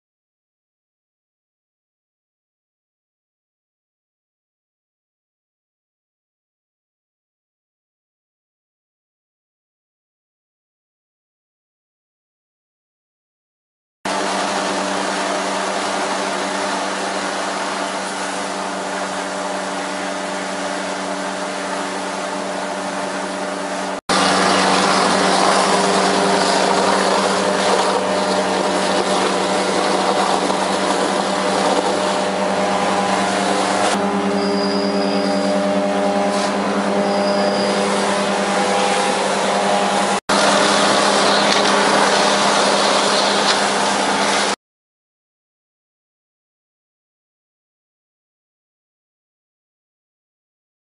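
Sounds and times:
engine hum: 14.1s - 44.6s.

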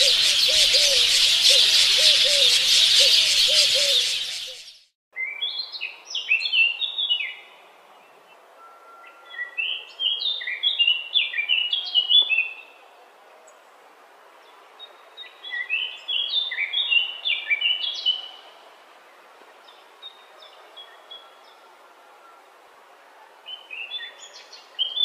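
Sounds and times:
jungle chorus of calls: 0.0s - 4.7s
faint background hiss: 5.2s - 25.0s.

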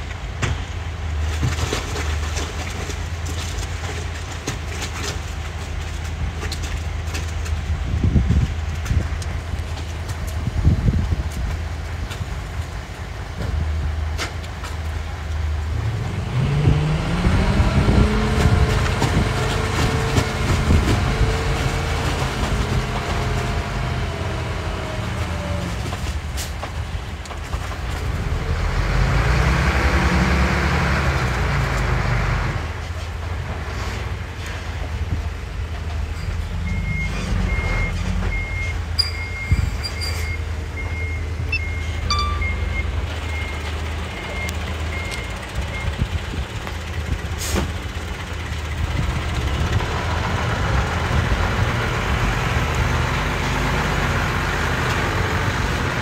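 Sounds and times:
dump truck engine revving: 15.1s - 27.0s, 27.8s - 56.0s
reversing alarm beeping: 36.6s - 46.0s.

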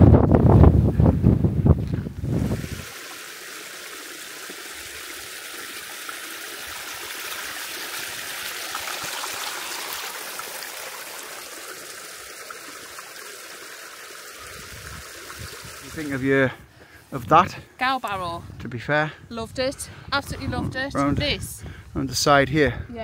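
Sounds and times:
stream trickling over stones: 1.8s - 16.5s.

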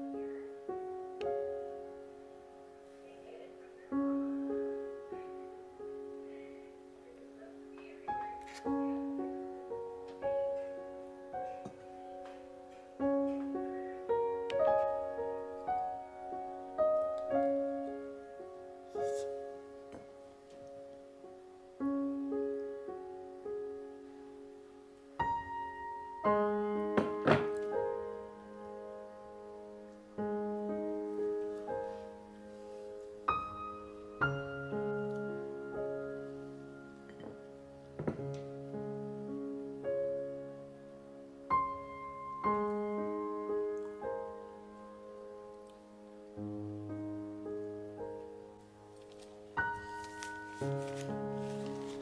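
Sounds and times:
gentle solo piano music: 0.0s - 52.0s.

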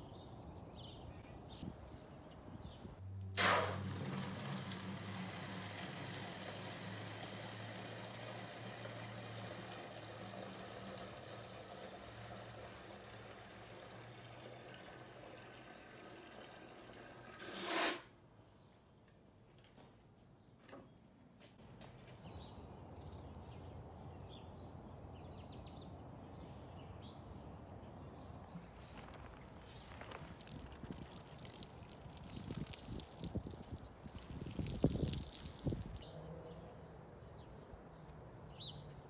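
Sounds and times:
hose water filling watering can: 3.4s - 18.1s, 29.2s - 36.0s.

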